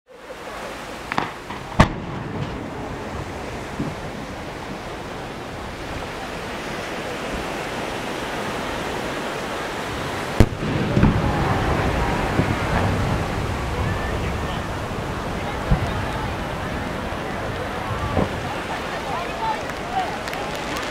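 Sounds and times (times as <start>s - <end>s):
steady wash of noise: 0.1s - 20.9s
firework launch report: 0.3s - 7.2s, 9.9s - 20.9s
firework shell bursting boom: 1.1s - 2.7s
low rumbling echo: 1.1s - 6.2s, 10.4s - 19.0s.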